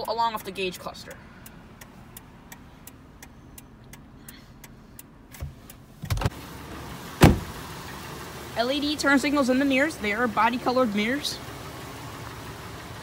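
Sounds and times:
turn signal ticking: 0:00.0 - 0:13.0
thuds: 0:07.2 - 0:07.5
car door slamming shut: 0:07.2 - 0:07.6.

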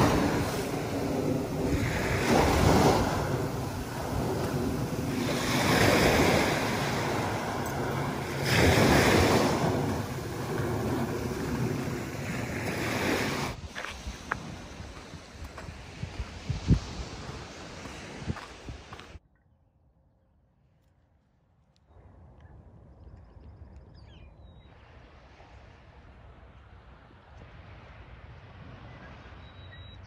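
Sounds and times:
small waves washing on beach: 0:00.0 - 0:19.2
wind on microphone: 0:00.0 - 0:19.2.

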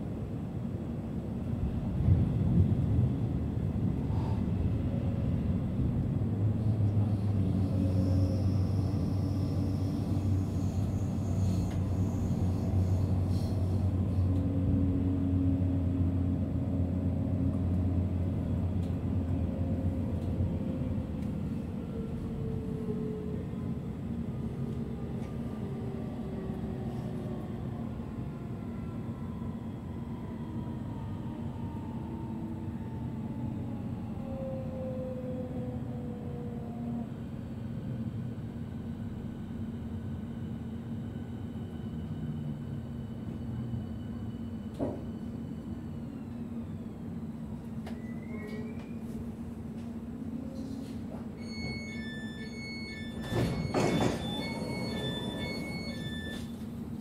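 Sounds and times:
train wheels rumbling: 0:53.0 - 0:56.5.

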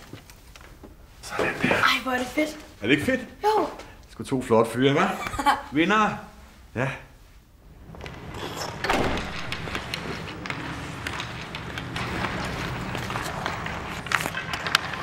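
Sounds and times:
skates scraping ice: 0:08.1 - 0:15.0
sticks and pucks clacking: 0:09.5 - 0:15.0.

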